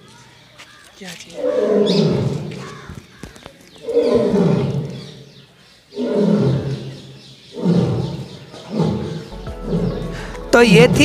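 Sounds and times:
lion roaring: 1.4 - 2.6, 3.8 - 5.2, 5.9 - 10.3.

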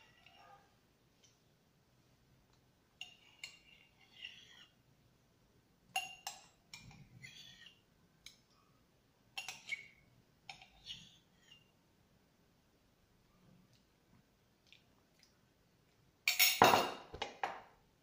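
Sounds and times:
spoon clinking ceramic mug: 6.0 - 7.7, 9.4 - 9.9.

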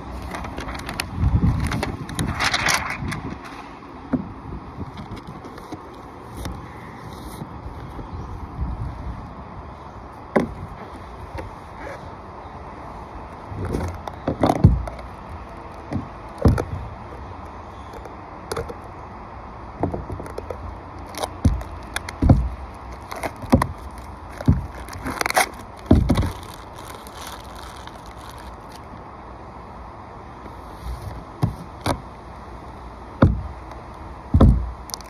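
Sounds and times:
tape crackling and scraping: 0.0 - 3.8, 13.2 - 19.0, 19.9 - 29.1, 32.6 - 35.0.

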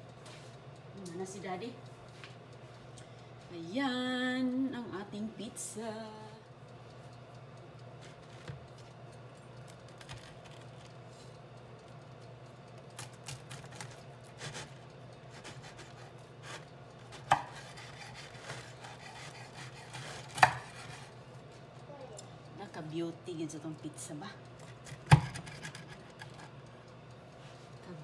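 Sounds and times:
steady low hum: 0.0 - 28.0
knife crunching through pizza: 13.0 - 21.2.

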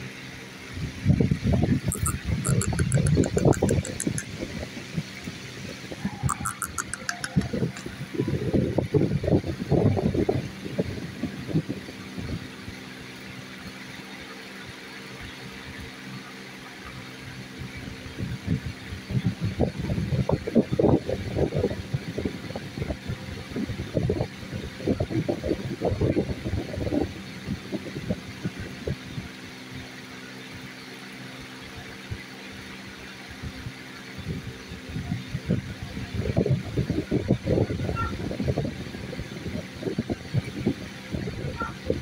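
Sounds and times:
steady low hum: 0.0 - 12.8.

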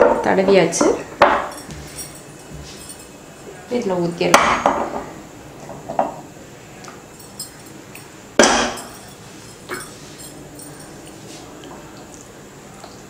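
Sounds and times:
utensils knocking glass dish: 8.4 - 9.1.

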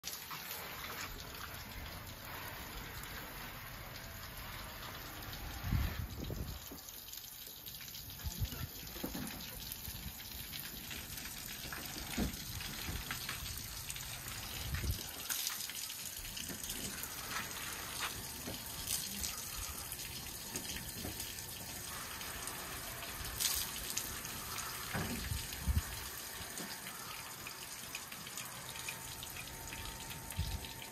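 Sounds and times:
hose spraying water on boat: 0.0 - 30.9.

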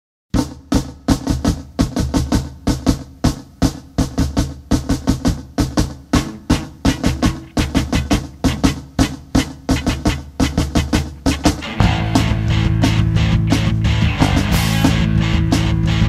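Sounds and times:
drum kit fast beat: 0.3 - 16.0
bass guitar notes: 6.2 - 16.0.

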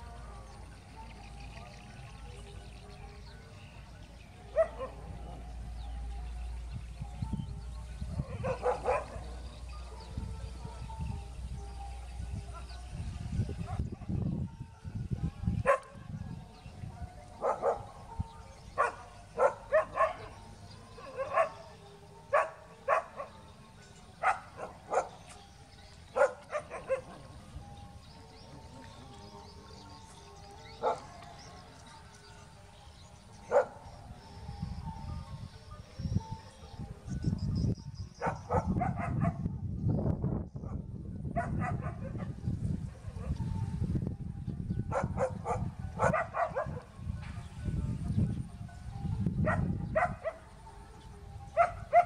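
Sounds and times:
dogs barking: 4.4 - 5.4, 8.1 - 10.9, 15.6 - 16.0, 17.3 - 23.5, 24.1 - 27.5, 30.7 - 31.4, 33.4 - 34.0, 38.1 - 39.6, 40.6 - 43.5, 44.9 - 46.9, 49.2 - 50.6, 51.4 - 52.0.

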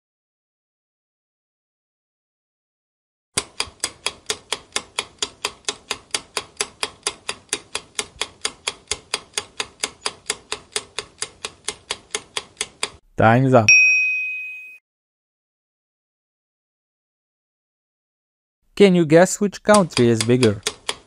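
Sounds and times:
sharp clock ticks: 3.4 - 13.0, 19.5 - 21.0.

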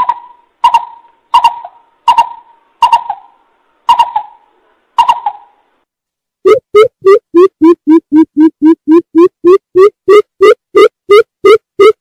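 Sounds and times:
coucal calling: 0.0 - 5.6.

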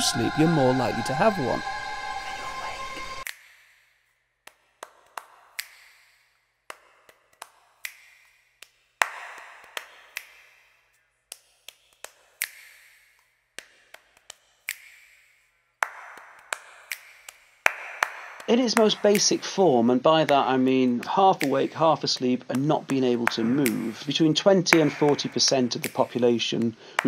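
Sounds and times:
short hissing swell: 0.0 - 3.2.

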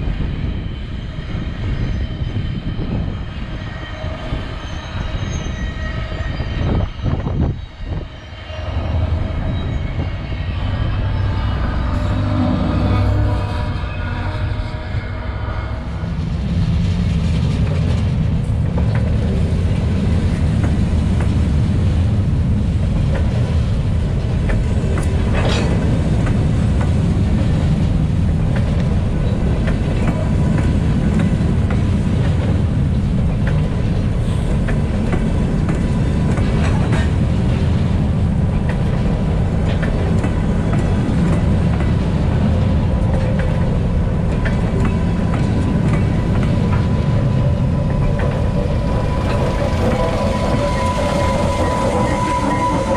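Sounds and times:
train wheels rumbling on rails: 0.0 - 52.9
high squeal: 0.2 - 16.3, 46.9 - 52.9
wheels clicking on rail joints: 22.9 - 52.9.

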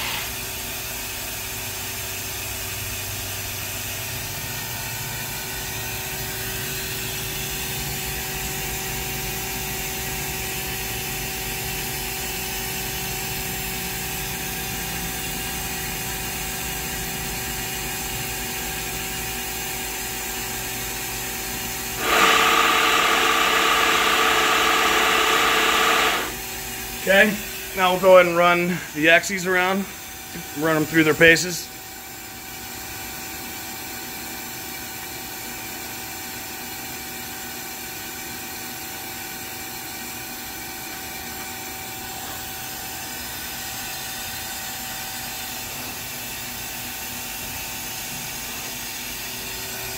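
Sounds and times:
machine hum with steady tones: 4.5 - 32.5
loud whining machine noise: 13.8 - 31.4.

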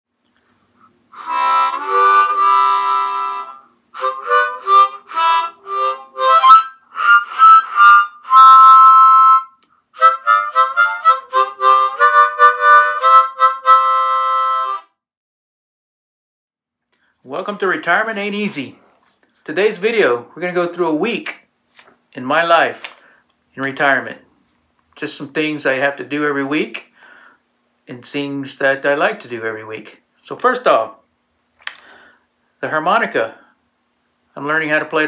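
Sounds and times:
harmonica playing: 1.1 - 15.0.

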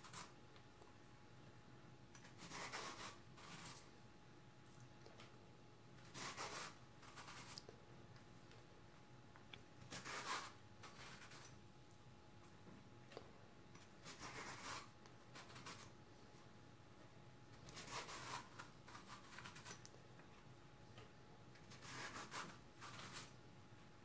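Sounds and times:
vegetable peeler scraping: 2.3 - 3.8, 21.6 - 23.3.

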